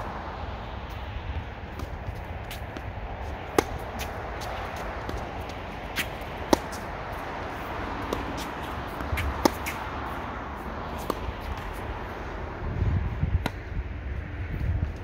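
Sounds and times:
tennis balls bouncing on court: 0:00.8 - 0:12.4, 0:13.3 - 0:13.8
tennis balls struck by racket: 0:01.6 - 0:12.2, 0:13.3 - 0:13.8.

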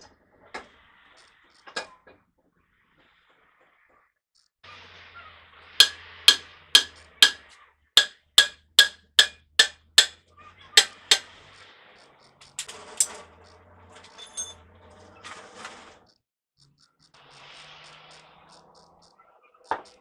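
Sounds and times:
hammer striking metal hub: 0:05.8 - 0:10.2, 0:10.8 - 0:11.4, 0:12.5 - 0:13.2
metallic clatter: 0:12.4 - 0:15.7.

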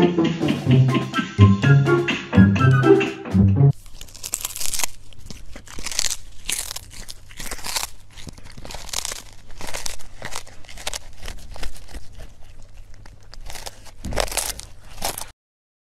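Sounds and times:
cat crunching and chewing fish: 0:03.7 - 0:15.4.

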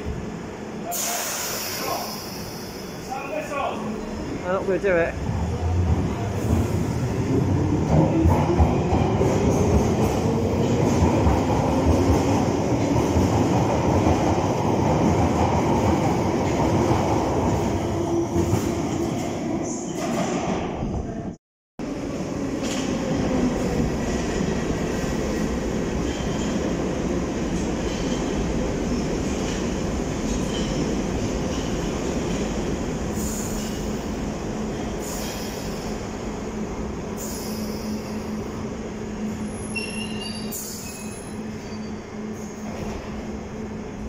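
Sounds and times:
underground train arriving: 0:00.0 - 0:44.0
high brake squeals: 0:39.4 - 0:42.1.

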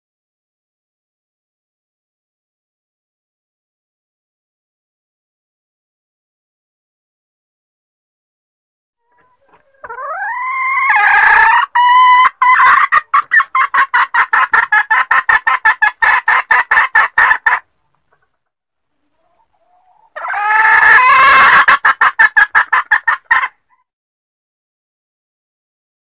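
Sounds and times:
hen junglefowl clucking call: 0:09.0 - 0:18.4, 0:19.0 - 0:23.8.

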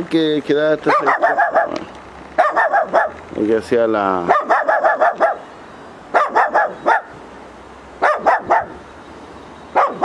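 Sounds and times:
dogs barking: 0:00.8 - 0:03.2, 0:04.2 - 0:05.5, 0:06.1 - 0:07.2, 0:08.0 - 0:08.8, 0:09.7 - 0:10.0.

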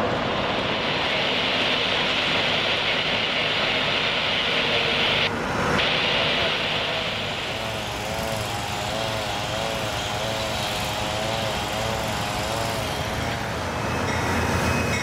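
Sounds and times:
small engine running: 0:06.7 - 0:14.2.

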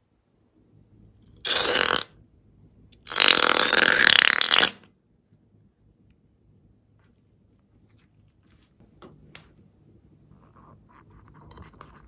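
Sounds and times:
air and slime sputtering: 0:01.4 - 0:02.1, 0:03.0 - 0:04.8.

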